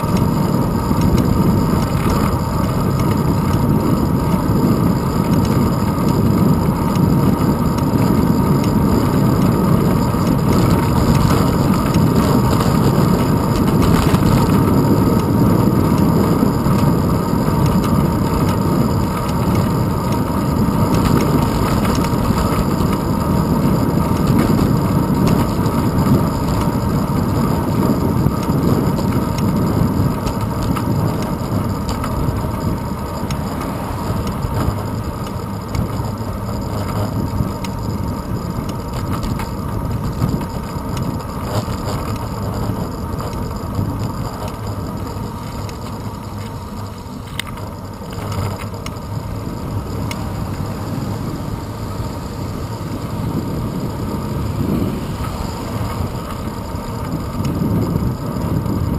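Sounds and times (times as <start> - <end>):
bicycle road rumble: 0.0 - 58.9
wind rush: 48.2 - 58.9.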